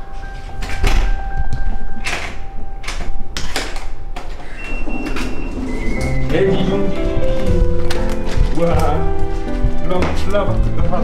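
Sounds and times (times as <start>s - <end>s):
keypad electronic beeps: 4.3s - 7.3s.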